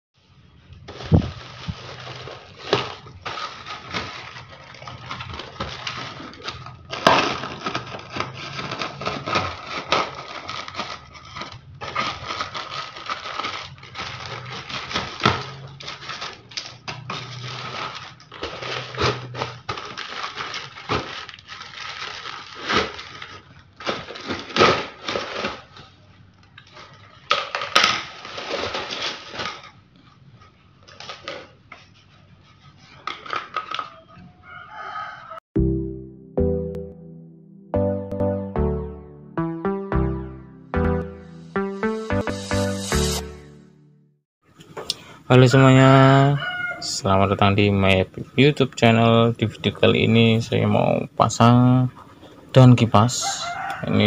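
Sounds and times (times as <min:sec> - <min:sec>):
plastic bag crinkling: 0:00.7 - 0:29.9.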